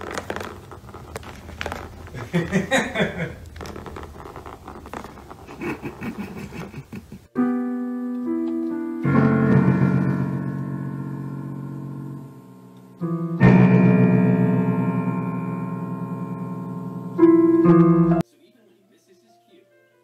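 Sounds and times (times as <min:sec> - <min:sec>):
soft scuffling: 0:00.0 - 0:07.2.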